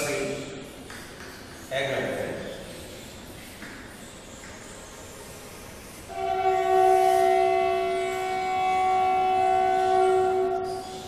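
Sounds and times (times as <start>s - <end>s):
horn sounding steady chord: 6.1s - 11.0s.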